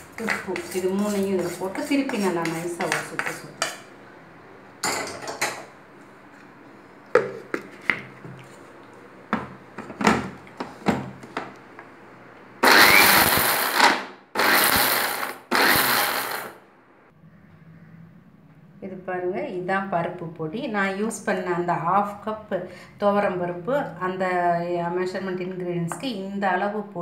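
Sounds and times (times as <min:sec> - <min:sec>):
mixer grinder running: 0:12.6 - 0:16.6.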